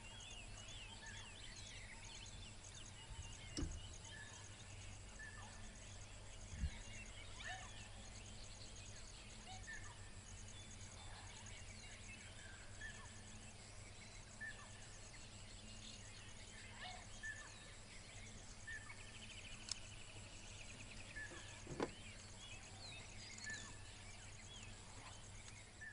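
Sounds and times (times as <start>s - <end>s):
birds calling: 0.0s - 25.9s
bird trill: 6.6s - 25.9s
soft knocks: 21.6s - 22.0s.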